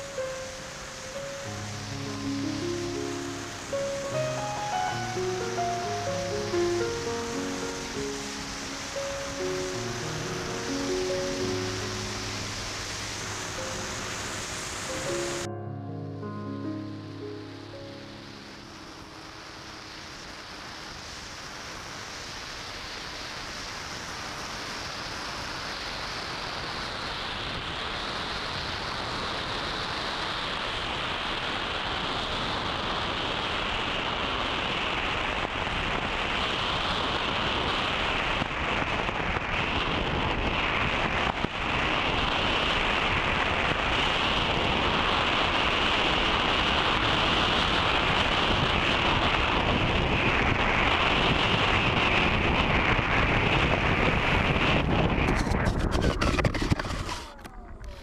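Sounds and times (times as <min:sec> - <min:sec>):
wind rushing over microphone: 0:35.0 - 0:58.0.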